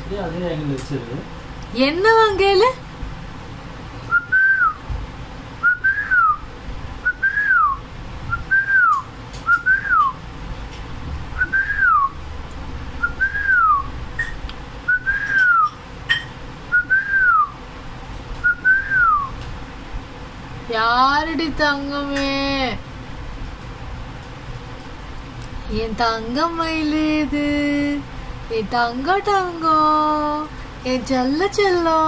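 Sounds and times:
rising and falling whistle: 4.1 - 4.8, 5.6 - 10.2, 11.4 - 12.2, 13.0 - 13.9, 14.9 - 15.8, 16.7 - 17.6, 18.4 - 19.4.

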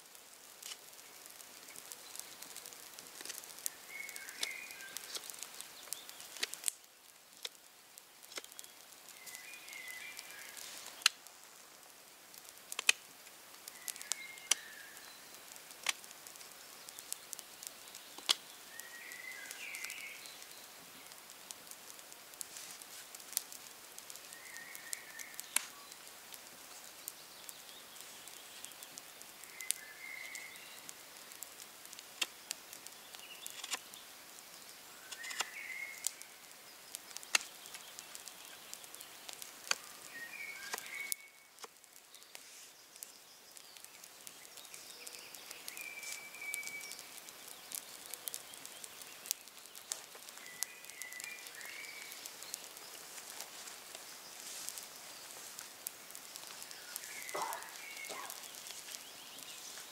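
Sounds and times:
bird calls: 3.6 - 6.6, 8.5 - 11.1, 13.7 - 15.5, 16.6 - 21.2, 24.1 - 31.0, 32.2 - 59.9.

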